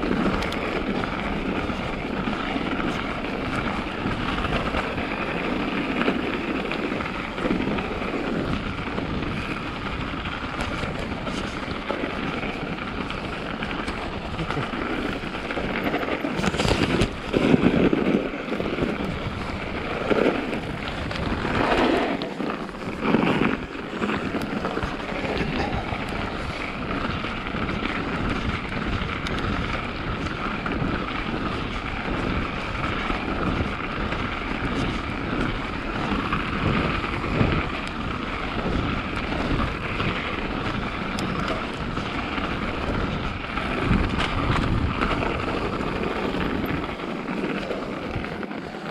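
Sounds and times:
bike bumps and rattles: 0.0 - 48.9
bike tyre and drivetrain noise: 0.0 - 48.9
wind on microphone: 0.0 - 48.9.

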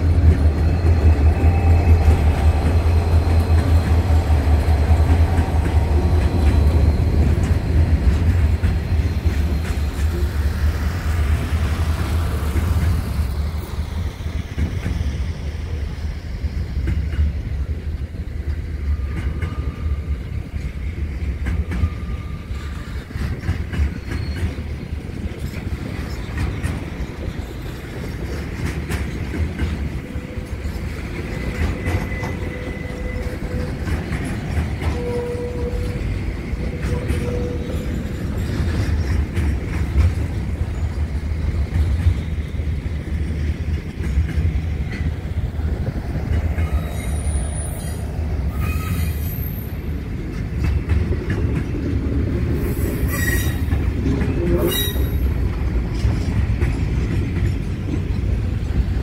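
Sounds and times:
train wheels rumbling on rails: 0.0 - 59.0
high-pitched wheel squeals: 30.1 - 33.8, 34.8 - 38.7, 46.6 - 49.8, 52.7 - 53.7, 54.6 - 55.3.

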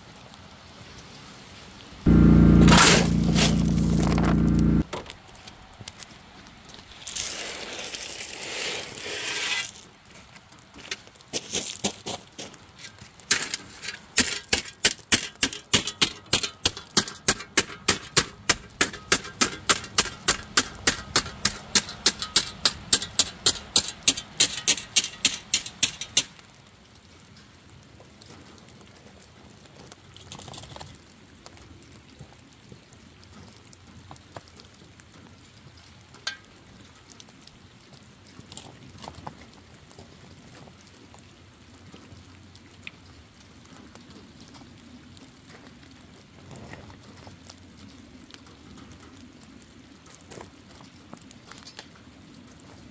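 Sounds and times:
gravel sliding off a shovel: 2.1 - 4.8, 6.8 - 12.2, 12.8 - 26.2
shovel blade clacking along track: 2.1 - 4.8, 13.3 - 26.4.

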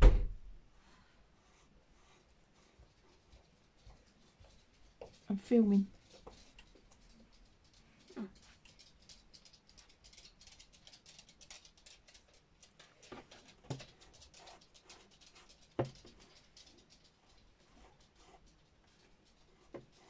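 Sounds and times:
pencil scratching on paper: 0.7 - 4.5, 13.2 - 16.3, 17.1 - 20.0.

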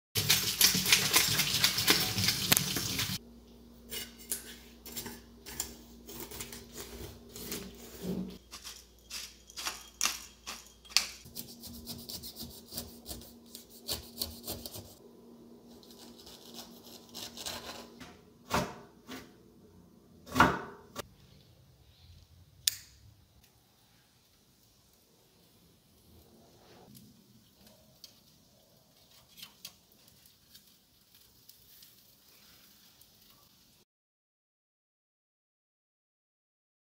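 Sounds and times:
tap water running into a sink: 0.2 - 3.2
knife scraping fish scales: 3.9 - 15.0, 15.7 - 18.0
knife scraping pineapple rind: 3.9 - 15.0, 15.7 - 18.0.

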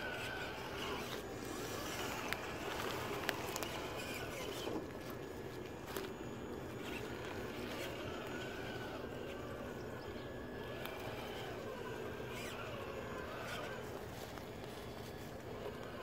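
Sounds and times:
electric motor whine: 0.0 - 16.0
leaves crackling under tyres: 0.0 - 16.0
twigs snapping: 1.0 - 6.2.

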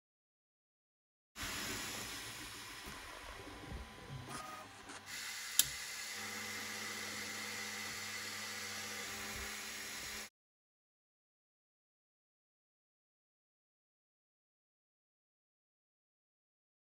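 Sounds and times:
printer fans and motors humming: 1.4 - 10.3
sharp click: 5.6 - 5.8.

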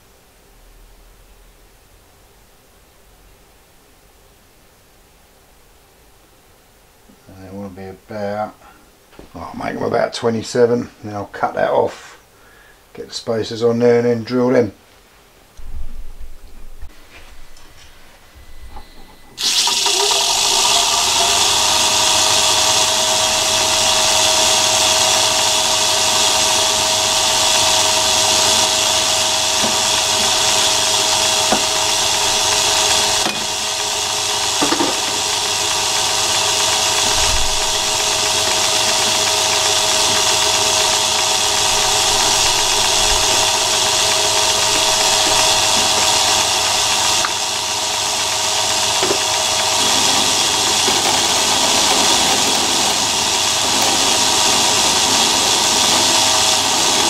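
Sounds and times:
lathe whine: 17.1 - 57.0
metal lathe running: 17.5 - 57.0.

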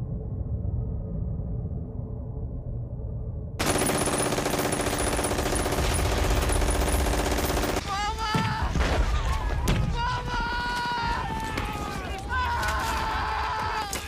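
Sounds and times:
machine-gun fire: 3.6 - 7.8.

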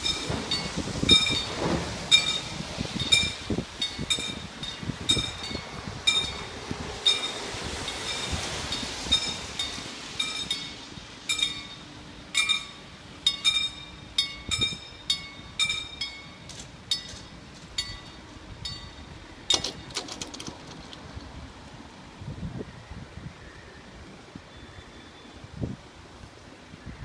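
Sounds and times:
level crossing bells ringing: 2.2 - 19.7.

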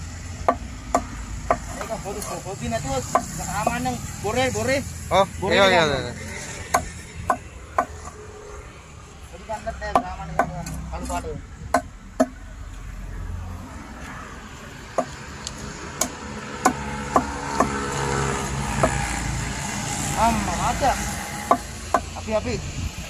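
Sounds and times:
knife chopping on wooden block: 0.5 - 1.9, 3.1 - 3.4, 6.8 - 8.2, 16.0 - 17.8, 21.5 - 22.1.

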